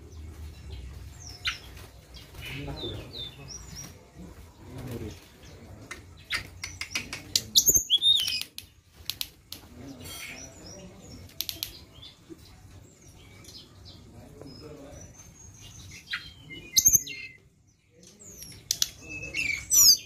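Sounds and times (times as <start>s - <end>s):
bird clicks: 5.9s - 9.7s, 11.2s - 11.9s, 18.0s - 19.0s.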